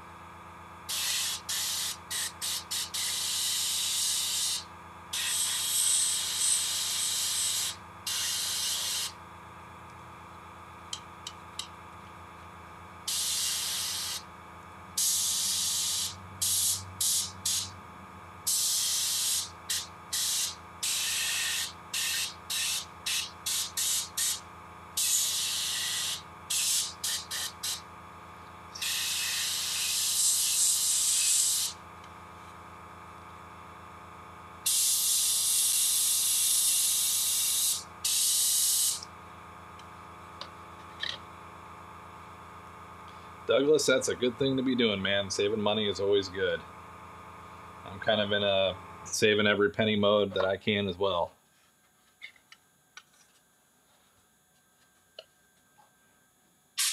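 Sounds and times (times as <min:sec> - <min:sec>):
airbrush spraying hiss: 0:00.9 - 0:09.2, 0:13.1 - 0:14.2, 0:15.0 - 0:17.8, 0:18.5 - 0:24.4, 0:25.0 - 0:27.8, 0:28.8 - 0:31.8, 0:34.7 - 0:39.0.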